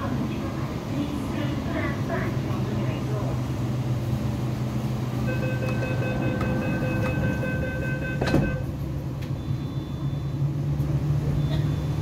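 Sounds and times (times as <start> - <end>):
train hum: 0.0 - 12.0
door closing warning tone: 5.3 - 10.4
train doors shutting with knock: 5.4 - 9.4.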